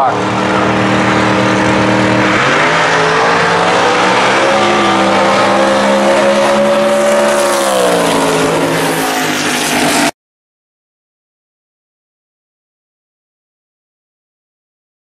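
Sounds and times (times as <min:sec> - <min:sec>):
drag cars accelerating: 0:00.0 - 0:10.1.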